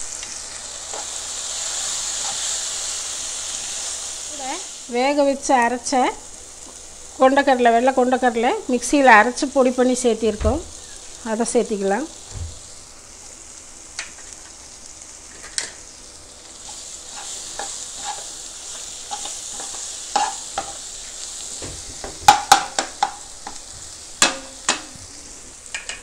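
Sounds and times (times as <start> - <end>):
food sizzling in a pan: 0.0 - 26.0
spatula scraping a pan: 16.6 - 21.2.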